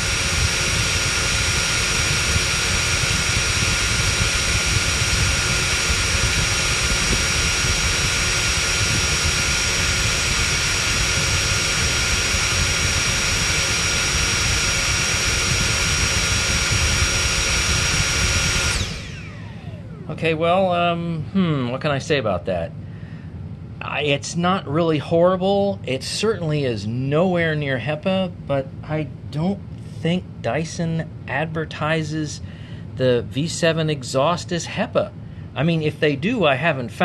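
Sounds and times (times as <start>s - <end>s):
cordless vacuum running: 0.0s - 20.7s
high-pitched motor whine: 0.0s - 21.7s.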